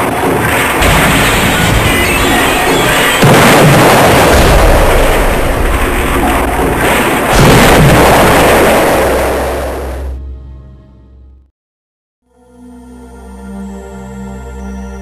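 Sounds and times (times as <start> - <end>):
explosion blasts with rumble: 0.0 - 10.2.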